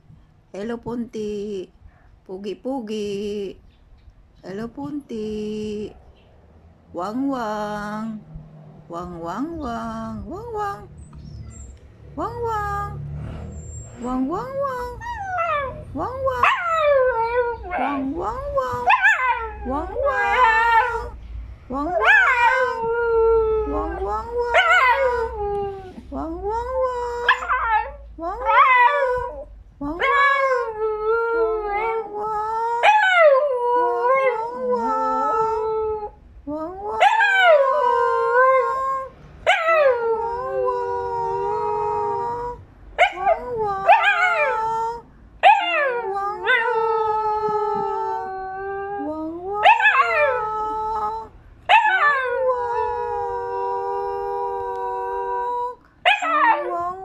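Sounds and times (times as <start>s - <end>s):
dog howling: 18.8s - 21.2s, 27.2s - 36.2s, 43.0s - 44.7s, 45.4s - 55.5s, 56.1s - 57.0s.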